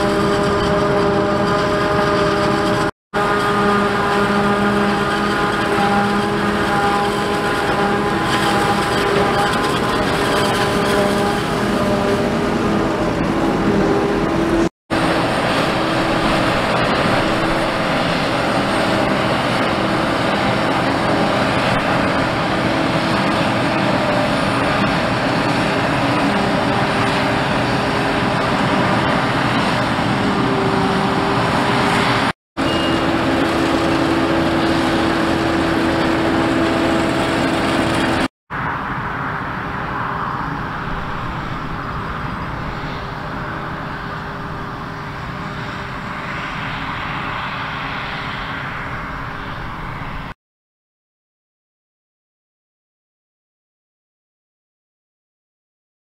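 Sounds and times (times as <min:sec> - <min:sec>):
tractor running under load: 0:00.0 - 0:50.2.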